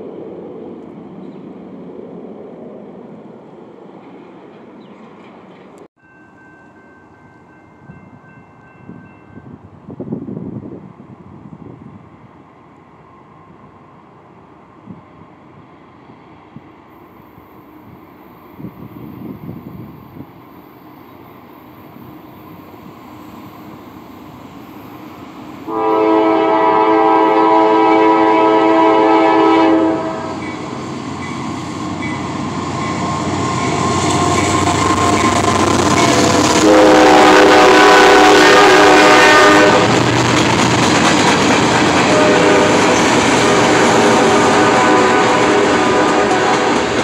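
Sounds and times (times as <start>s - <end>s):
freight train rumbling past: 0.0s - 47.0s
locomotive air horn blasts: 25.7s - 30.5s, 36.1s - 40.0s, 42.1s - 46.8s.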